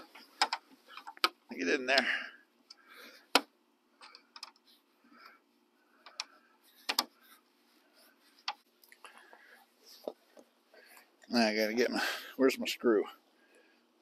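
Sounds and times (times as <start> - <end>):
plastic clicks and light taps: 0.1 - 1.4.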